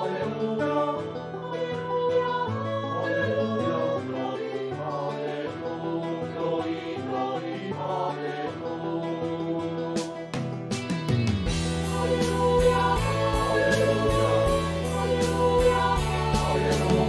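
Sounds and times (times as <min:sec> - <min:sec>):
sampled choir holding chords: 0:00.0 - 0:10.2, 0:11.5 - 0:17.0
instrumental accompaniment: 0:07.7 - 0:17.0.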